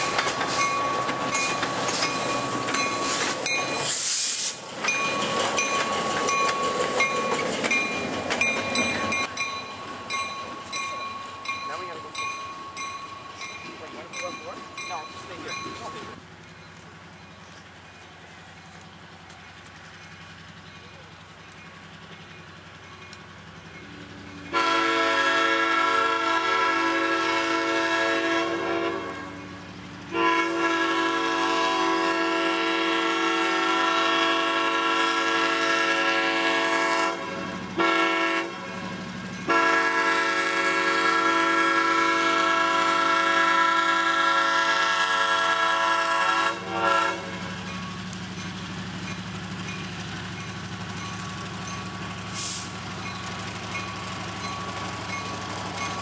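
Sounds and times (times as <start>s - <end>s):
locomotive air horn blasts: 24.5s - 29.3s, 30.1s - 38.6s, 39.5s - 47.4s.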